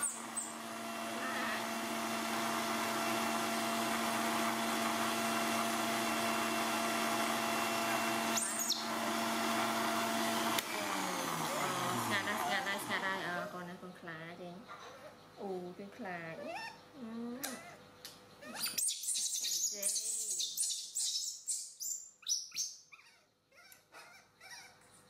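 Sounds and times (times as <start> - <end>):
blender motor winding down: 0.0 - 13.7
blender running: 0.0 - 13.7.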